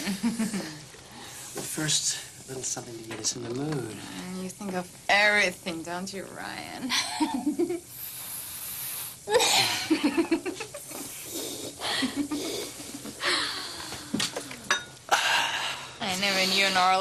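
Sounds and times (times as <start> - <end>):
woman giggling: 6.9 - 7.8, 9.3 - 11.1
deep breaths through gas mask: 7.9 - 9.8, 10.9 - 14.5.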